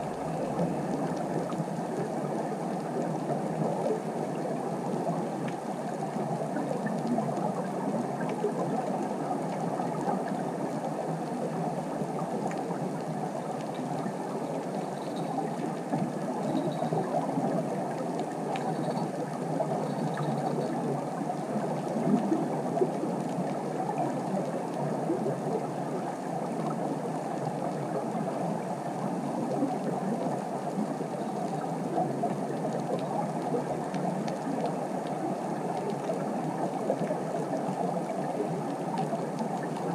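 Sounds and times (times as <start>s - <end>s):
muffled underwater ambience: 0.0s - 39.9s
faint clicks: 30.7s - 39.9s.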